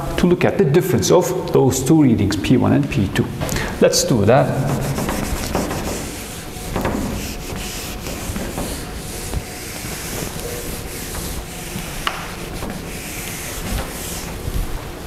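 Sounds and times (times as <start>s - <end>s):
eraser rubbing on whiteboard: 4.4s - 14.7s.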